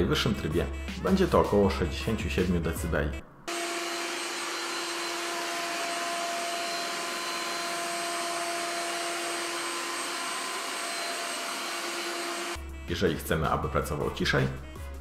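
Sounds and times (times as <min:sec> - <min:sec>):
robot vacuum whining hum: 0:03.5 - 0:12.6.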